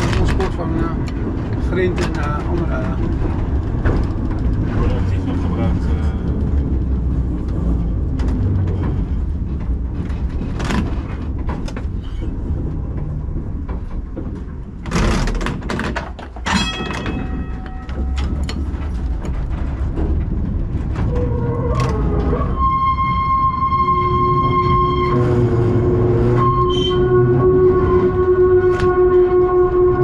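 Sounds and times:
tram rumbling and rattling: 0.0s - 30.0s
high ringing tone: 16.5s - 18.4s.

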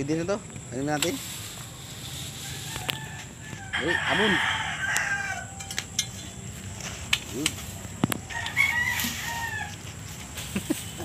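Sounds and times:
rooster crowing: 2.3s - 6.0s, 8.2s - 10.0s.

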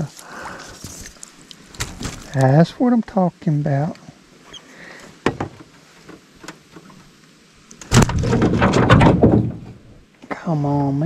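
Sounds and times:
fish flopping in net: 1.0s - 2.4s
loud rattling clatter: 7.9s - 9.7s.

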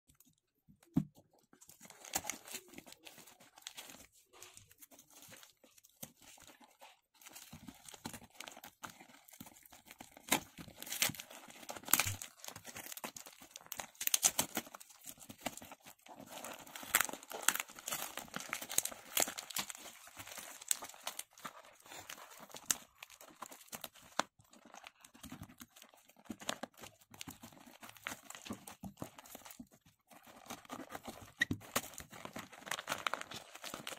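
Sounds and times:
cardboard ripping: 7.2s - 24.2s.

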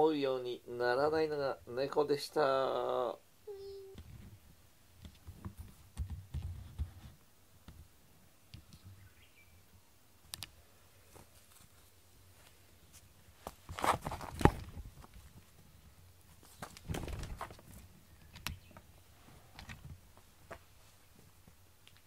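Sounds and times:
cat thumps and scuffles: 16.6s - 17.8s.

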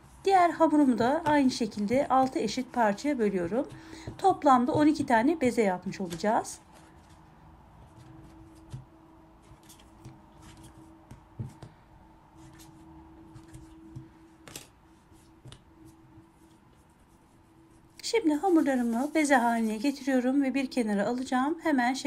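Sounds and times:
faint steady hum: 0.0s - 22.0s
soft taps and scrapes: 12.4s - 19.9s.

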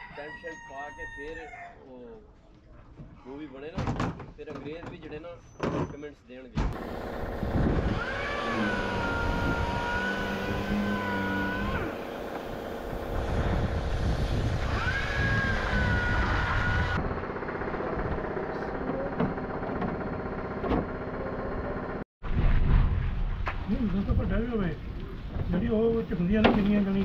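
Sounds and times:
vehicle engine running: 6.8s - 9.0s, 17.0s - 22.0s.

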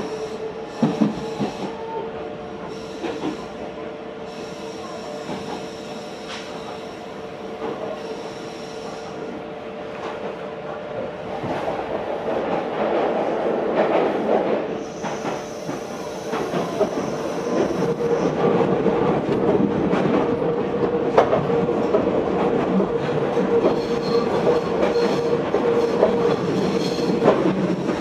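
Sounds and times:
train running noise: 0.0s - 28.0s.

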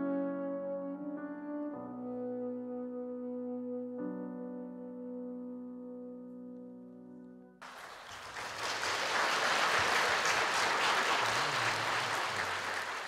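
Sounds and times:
audience applause: 7.6s - 13.0s.

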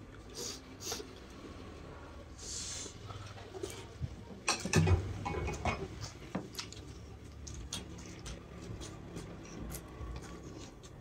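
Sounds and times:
person chewing food: 6.0s - 11.0s.

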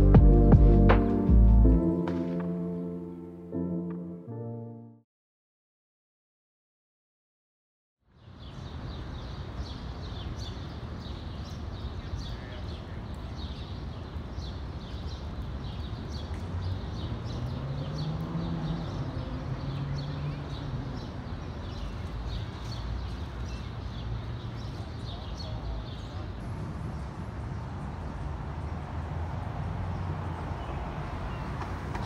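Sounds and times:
small birds chirping: 8.1s - 26.4s
distant city traffic rumble: 8.1s - 32.0s
vehicle passing: 16.4s - 21.3s.

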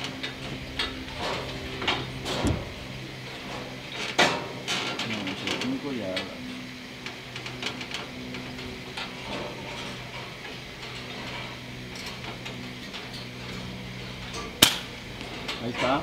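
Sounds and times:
low steady hum: 0.0s - 16.0s
suppressed air rifle shot: 14.6s - 14.9s.

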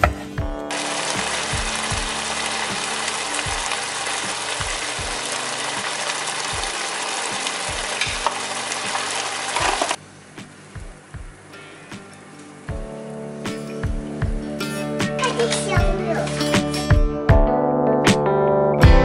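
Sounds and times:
background music with low beat: 0.0s - 6.8s, 7.4s - 8.4s, 10.4s - 19.0s
food sizzling in a pan: 0.7s - 10.0s.

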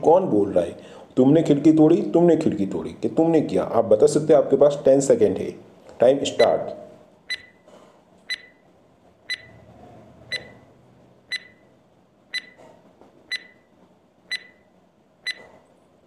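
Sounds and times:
electronic tick-beeps: 7.3s - 7.6s, 8.3s - 8.6s, 9.3s - 9.5s, 10.3s - 10.6s, 11.3s - 11.6s, 12.3s - 12.6s, 13.3s - 13.6s, 14.3s - 15.5s.

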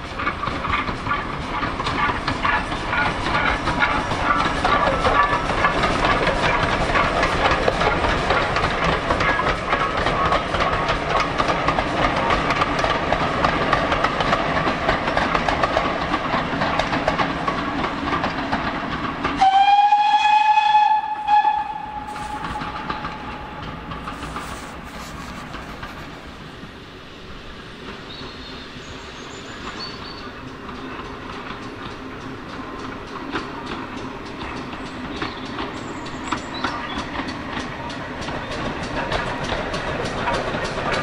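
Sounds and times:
steam locomotive rumble and clatter: 0.0s - 41.0s
steam whistle: 19.4s - 23.6s.

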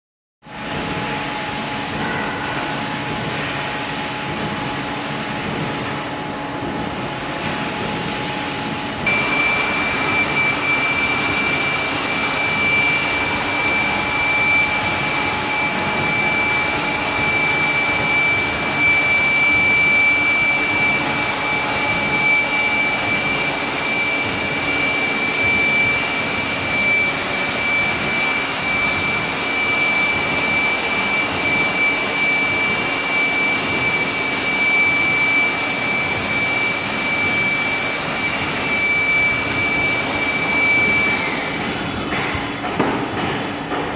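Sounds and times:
high-pitched whine: 0.5s - 43.8s
grinder whirring: 9.0s - 36.6s.

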